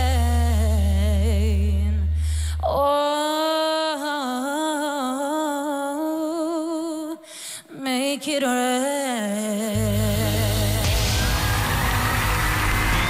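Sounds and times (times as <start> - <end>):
woman singing: 0.0 - 11.4
singer breathing in: 2.1 - 2.6, 7.2 - 7.8.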